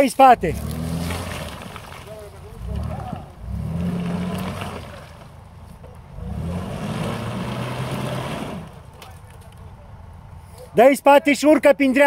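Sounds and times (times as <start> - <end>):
engine revving under load: 0.4 - 9.0.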